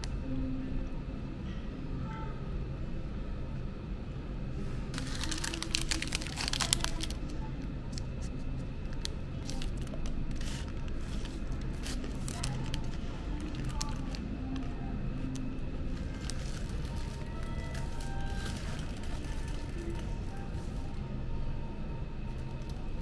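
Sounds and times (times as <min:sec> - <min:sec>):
low background hum: 0:00.0 - 0:23.0
paper crinkling and rustling: 0:04.9 - 0:20.8.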